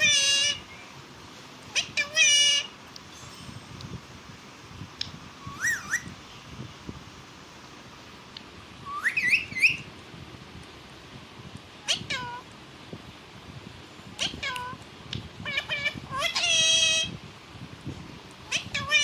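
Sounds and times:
parakeet whistled calls: 0:00.0 - 0:01.0, 0:05.4 - 0:06.2, 0:08.8 - 0:09.9.

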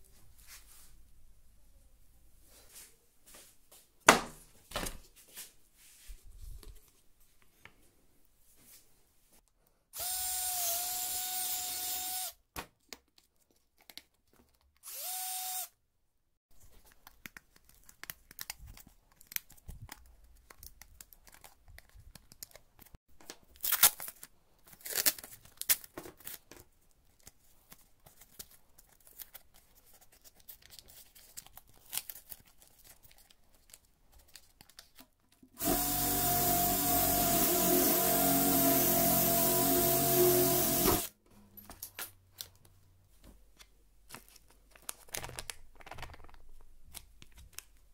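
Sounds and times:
cordless drill running: 0:10.0 - 0:12.3, 0:14.8 - 0:15.7, 0:35.6 - 0:41.1.

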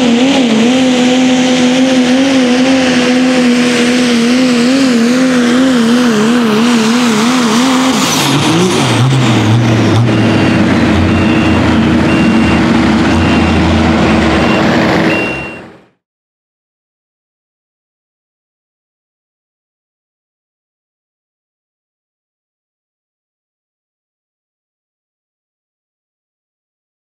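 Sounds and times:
diesel truck engine at full throttle: 0:00.0 - 0:16.0
short electronic beeps: 0:09.9 - 0:15.8.

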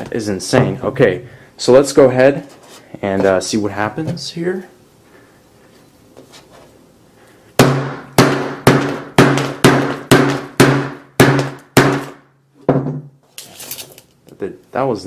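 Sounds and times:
hammer smashing phone screen: 0:07.6 - 0:12.2.

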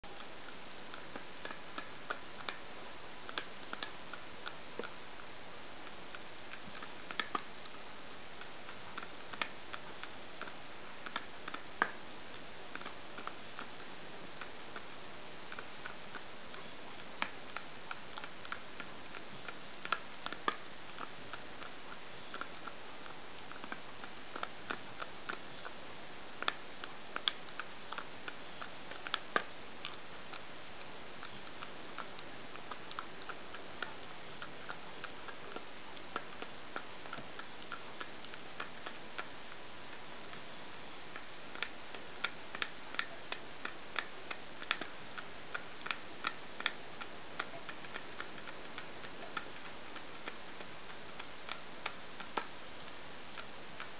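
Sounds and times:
dog teeth clicking on claws: 0:14.4 - 0:25.8, 0:26.4 - 0:30.5, 0:41.1 - 0:53.9.

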